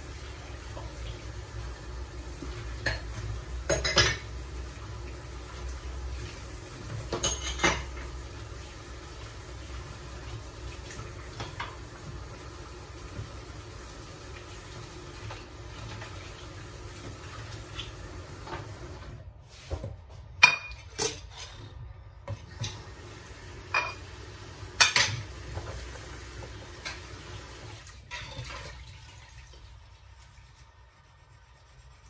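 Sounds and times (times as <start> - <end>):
dishes and cutlery clinking: 2.8 - 4.3, 7.0 - 8.0, 20.4 - 21.7, 23.7 - 24.1, 28.0 - 28.6.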